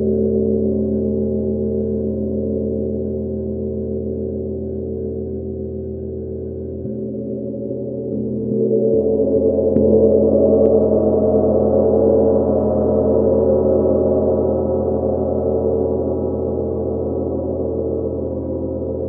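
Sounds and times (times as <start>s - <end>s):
gong ringing: 6.7s - 14.0s.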